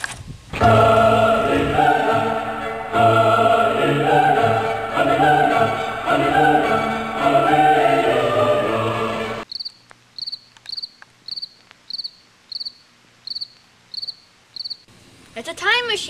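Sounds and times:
choral opera music: 0:00.5 - 0:09.4
cricket chirping: 0:09.4 - 0:14.9.

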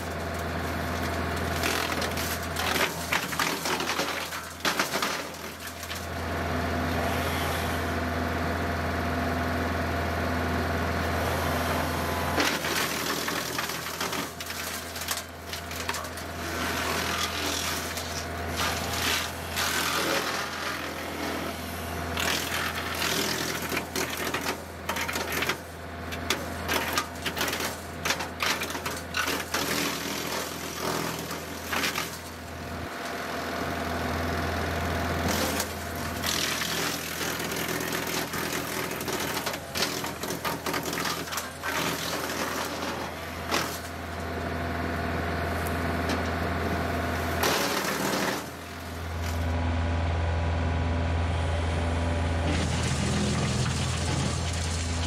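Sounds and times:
wood cracking and crunching: 0:00.0 - 0:06.3, 0:12.4 - 0:21.2, 0:22.2 - 0:33.2, 0:35.2 - 0:44.4, 0:47.3 - 0:49.5
wood chipper humming: 0:00.0 - 0:55.0.

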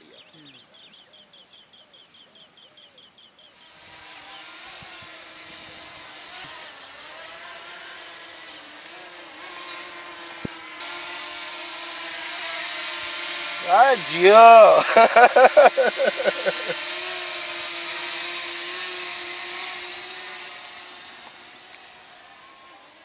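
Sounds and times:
bird chirping: 0:00.0 - 0:03.7
drone propellers whining: 0:07.7 - 0:23.0.

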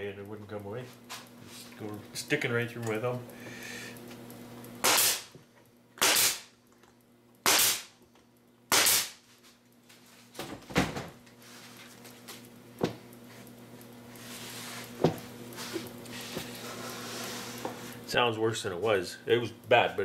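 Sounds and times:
nail gun firing: 0:04.8 - 0:05.3, 0:06.0 - 0:06.5, 0:07.4 - 0:07.9, 0:08.7 - 0:09.2.

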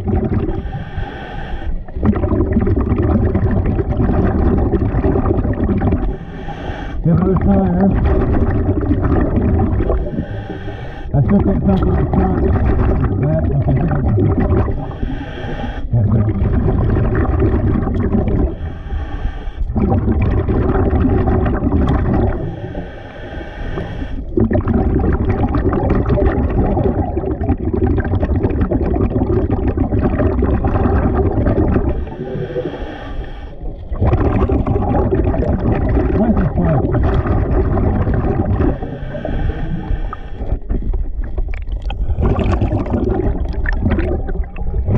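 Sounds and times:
bubbling exhalations: 0:00.0 - 0:44.9
hissing regulator inhalations: 0:00.5 - 0:02.0, 0:06.0 - 0:07.1, 0:09.8 - 0:11.1, 0:14.7 - 0:15.9, 0:18.4 - 0:19.8, 0:22.4 - 0:24.4, 0:31.8 - 0:33.8, 0:38.6 - 0:40.7.

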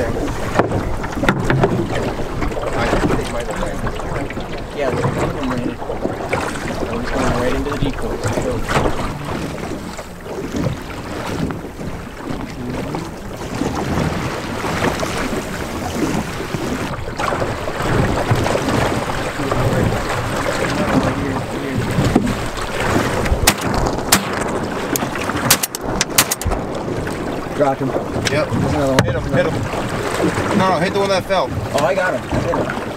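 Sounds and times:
water lapping against boat hull: 0:00.0 - 0:32.9
wind buffeting microphone: 0:00.0 - 0:32.9
sharp clicks and knocks: 0:00.6 - 0:01.8, 0:23.2 - 0:26.7.

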